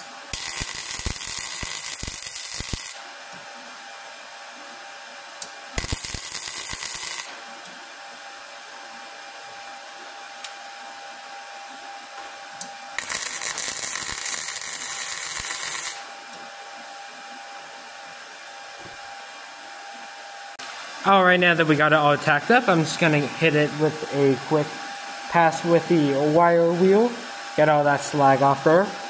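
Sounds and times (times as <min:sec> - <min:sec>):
welding arc crackling: 0:00.0 - 0:03.1, 0:05.4 - 0:07.4, 0:12.9 - 0:16.1
steady hum: 0:00.0 - 0:29.0.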